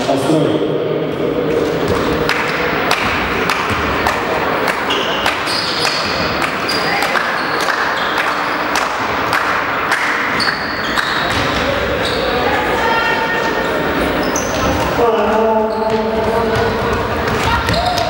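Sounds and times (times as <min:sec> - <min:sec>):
sneakers squeaking: 0:01.4 - 0:09.2, 0:10.1 - 0:18.0
basketball bouncing on court: 0:01.8 - 0:04.2, 0:10.3 - 0:11.8, 0:15.7 - 0:18.0.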